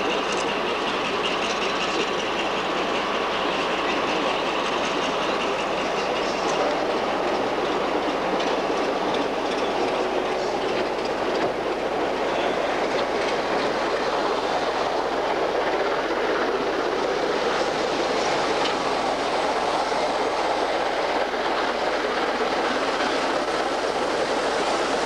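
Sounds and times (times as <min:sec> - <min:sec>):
diesel locomotive rumble: 0:00.0 - 0:25.0
wheels clicking on rails: 0:00.0 - 0:25.0.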